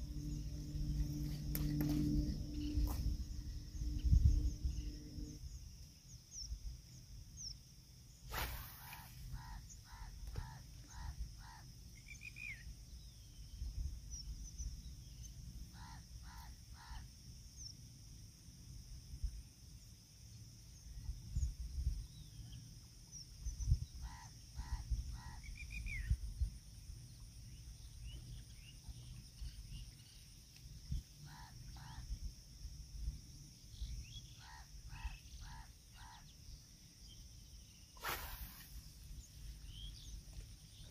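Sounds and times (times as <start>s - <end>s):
wind rumble on microphone: 0.0s - 6.7s, 13.0s - 15.4s, 20.9s - 35.6s.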